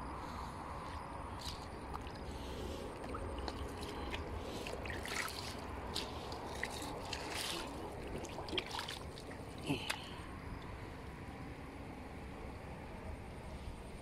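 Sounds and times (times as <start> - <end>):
low steady rumble: 0.0 - 14.0
water trickling and splashing: 0.8 - 10.2.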